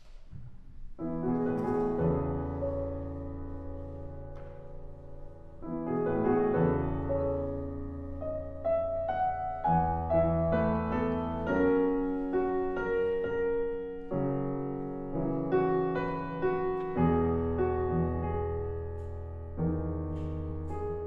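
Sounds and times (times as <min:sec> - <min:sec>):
slow solo piano: 0:00.0 - 0:21.0.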